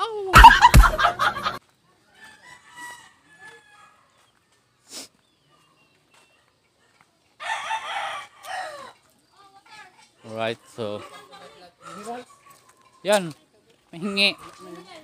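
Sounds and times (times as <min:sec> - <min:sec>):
rooster crowing: 0:02.2 - 0:04.3, 0:07.4 - 0:09.0.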